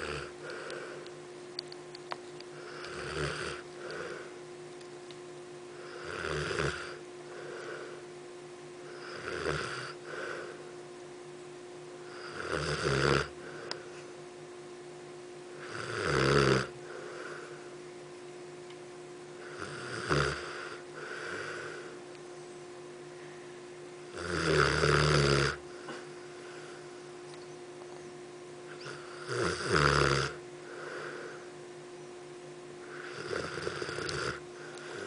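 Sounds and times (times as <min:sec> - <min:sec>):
dog snoring: 0:00.0 - 0:01.0, 0:02.6 - 0:04.3, 0:05.7 - 0:08.0, 0:08.8 - 0:10.6, 0:12.0 - 0:13.8, 0:15.5 - 0:17.5, 0:19.4 - 0:22.0, 0:24.1 - 0:26.0, 0:28.7 - 0:31.4, 0:32.8 - 0:35.0.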